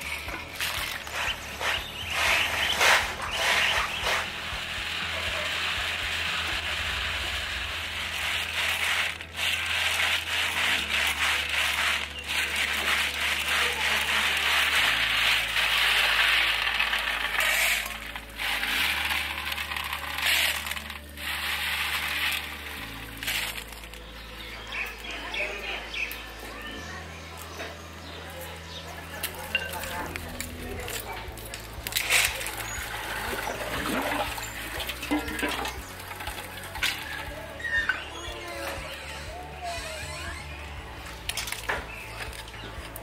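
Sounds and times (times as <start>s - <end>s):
shells rattling in metal bowl: 0.0s - 24.1s, 29.2s - 37.7s.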